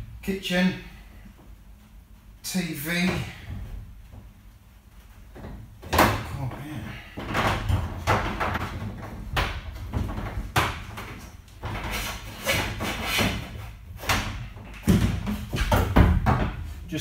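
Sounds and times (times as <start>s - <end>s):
cable scraping sheet metal: 11.6s - 14.6s.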